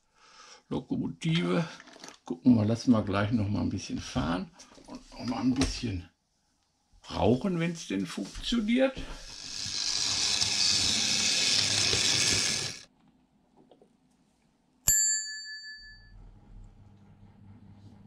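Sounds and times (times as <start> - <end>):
bright bell ding: 14.9 - 16.2.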